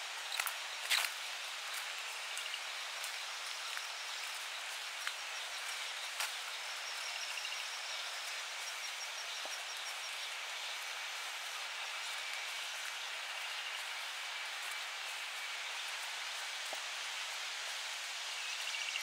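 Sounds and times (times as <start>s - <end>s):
steady hiss: 0.0s - 19.0s
crickets chirping: 0.2s - 19.0s.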